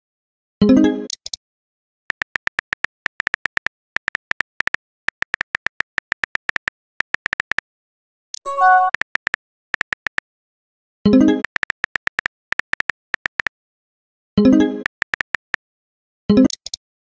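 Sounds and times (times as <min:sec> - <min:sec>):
synthetic keyboard typing clicks: 0:02.1 - 0:07.6, 0:08.4 - 0:10.2, 0:11.1 - 0:13.5, 0:14.4 - 0:15.6, 0:16.3 - 0:16.8
short bright chime: 0:08.5 - 0:08.9.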